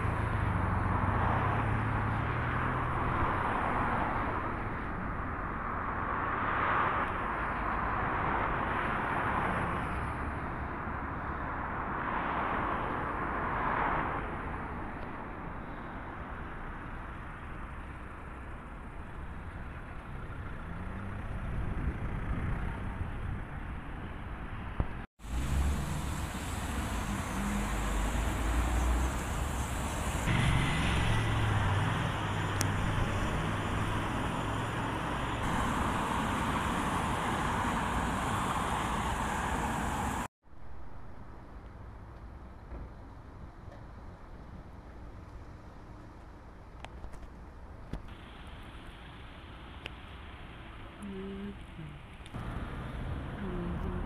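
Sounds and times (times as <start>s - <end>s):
cars passing: 0.0s - 40.3s, 48.1s - 54.0s
deep engine rumble: 25.2s - 40.3s
engine accelerating: 25.2s - 40.3s.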